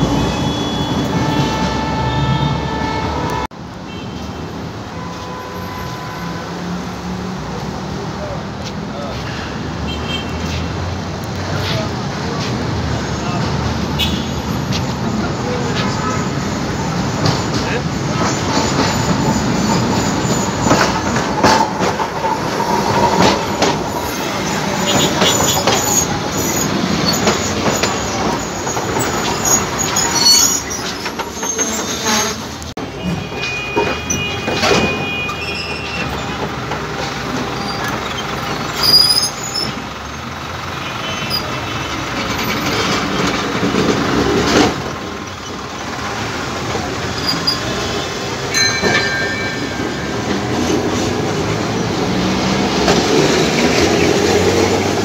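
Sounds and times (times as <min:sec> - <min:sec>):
high wheel squeals: 0:00.0 - 0:03.5, 0:13.2 - 0:43.7, 0:45.2 - 0:55.0
tram wheels rumbling on rails: 0:00.0 - 0:03.8, 0:10.4 - 0:55.0.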